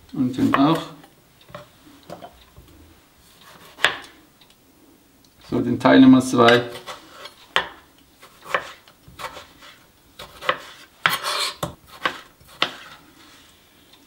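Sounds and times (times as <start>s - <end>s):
knife slicing tomato on cutting board: 3.4s - 4.1s, 6.5s - 13.0s.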